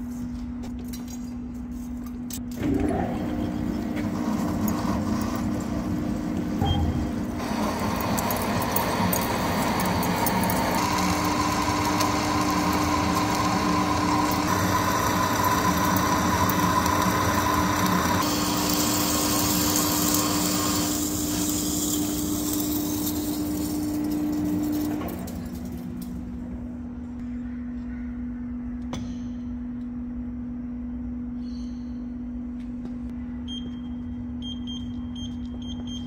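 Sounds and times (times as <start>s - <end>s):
lathe machining hum: 2.6s - 26.0s.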